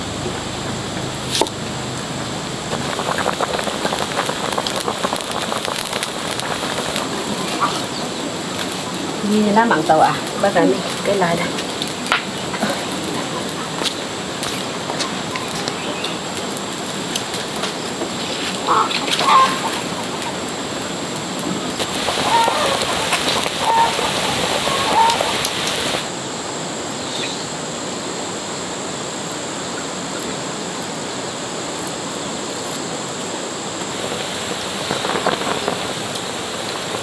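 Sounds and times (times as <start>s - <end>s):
steady hiss: 0.0s - 37.0s
chicken clucking: 6.0s - 8.0s, 18.6s - 20.4s, 21.8s - 26.0s.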